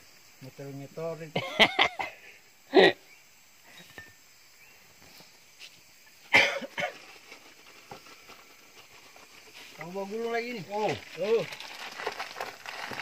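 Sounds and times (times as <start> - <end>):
faint outdoor background: 0.0 - 13.0
person coughing: 6.3 - 6.9.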